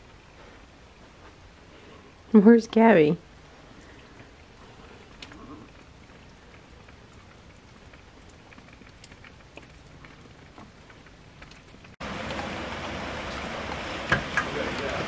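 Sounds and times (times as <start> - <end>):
rain: 0.0 - 15.0
drips ticking: 3.4 - 14.8.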